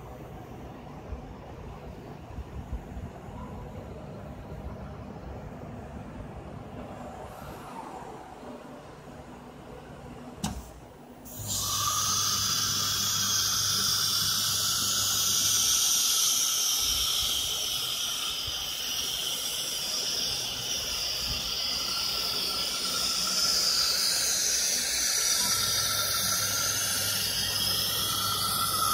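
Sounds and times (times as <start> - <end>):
router spindle whine and hiss: 11.3 - 28.9.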